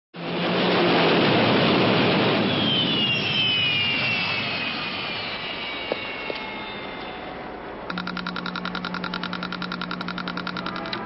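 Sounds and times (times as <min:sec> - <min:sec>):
jet turbine whoosh: 0:00.2 - 0:08.0
high whine sliding down: 0:01.8 - 0:11.0.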